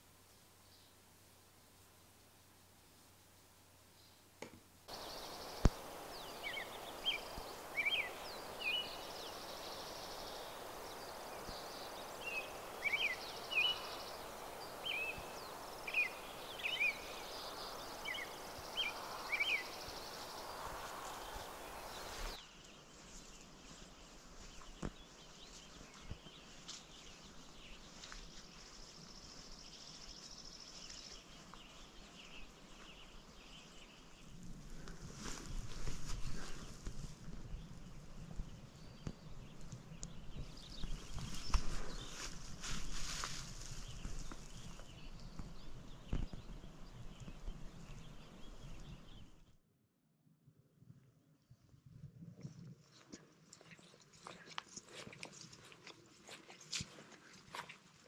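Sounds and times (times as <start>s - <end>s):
steady rushing hiss: 4.8s - 24.6s, 39.2s - 47.8s
birds chirping: 4.9s - 34.4s, 37.5s - 49.4s.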